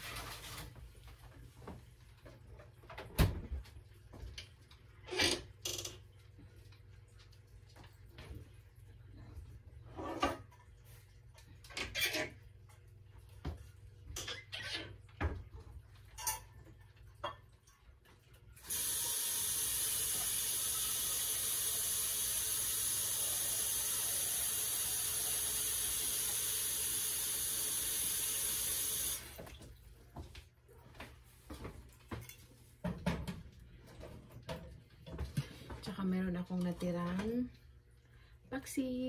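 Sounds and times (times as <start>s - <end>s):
sink tap running: 18.6s - 29.6s
kitchen knocks and clatter: 31.6s - 35.9s.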